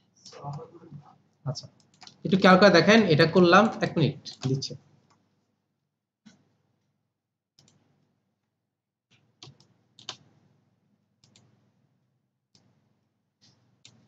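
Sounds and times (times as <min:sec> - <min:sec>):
mouse and keyboard clicks: 0:01.8 - 0:02.2, 0:07.6 - 0:07.8, 0:11.2 - 0:11.5, 0:13.4 - 0:14.0.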